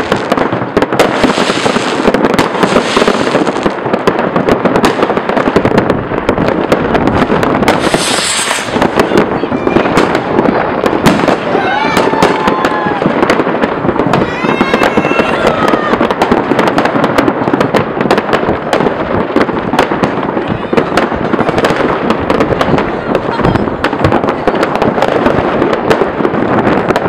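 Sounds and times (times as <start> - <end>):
fireworks crackling and banging: 0.0 - 27.0.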